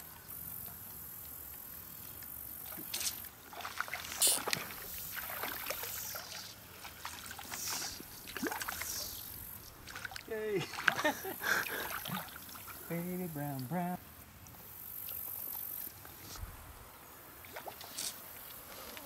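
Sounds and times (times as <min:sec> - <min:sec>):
fish splashing in water: 0:02.6 - 0:12.9, 0:17.4 - 0:18.6.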